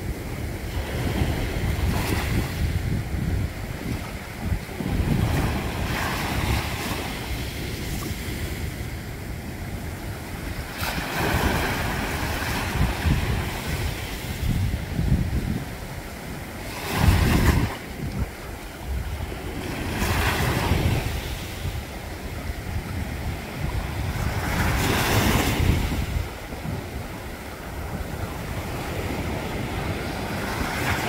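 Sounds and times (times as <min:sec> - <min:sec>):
wind buffeting microphone: 0:00.0 - 0:31.0
waves splashing against rock: 0:09.9 - 0:31.0.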